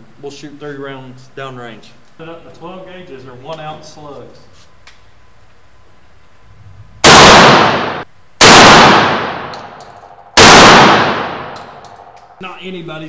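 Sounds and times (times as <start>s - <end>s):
shotgun shots echoing indoors: 7.0s - 12.4s.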